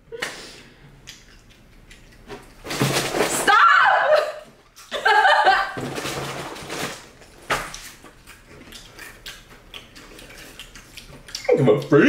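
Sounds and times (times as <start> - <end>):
woman laughing and giggling: 4.0 - 5.8.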